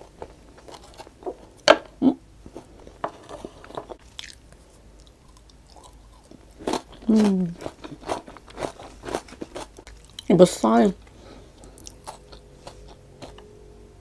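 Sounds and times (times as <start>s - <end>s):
chewing crunchy food: 2.6s - 10.3s, 11.5s - 13.5s
person humming mm: 7.1s - 7.6s.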